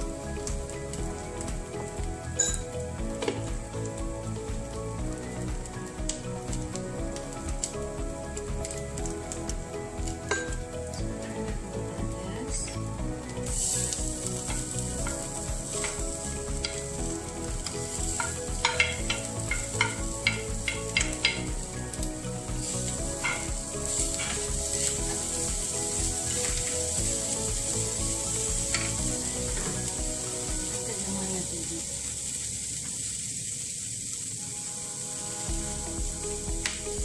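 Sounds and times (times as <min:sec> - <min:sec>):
meat sizzling in a pan: 0:00.0 - 0:37.0.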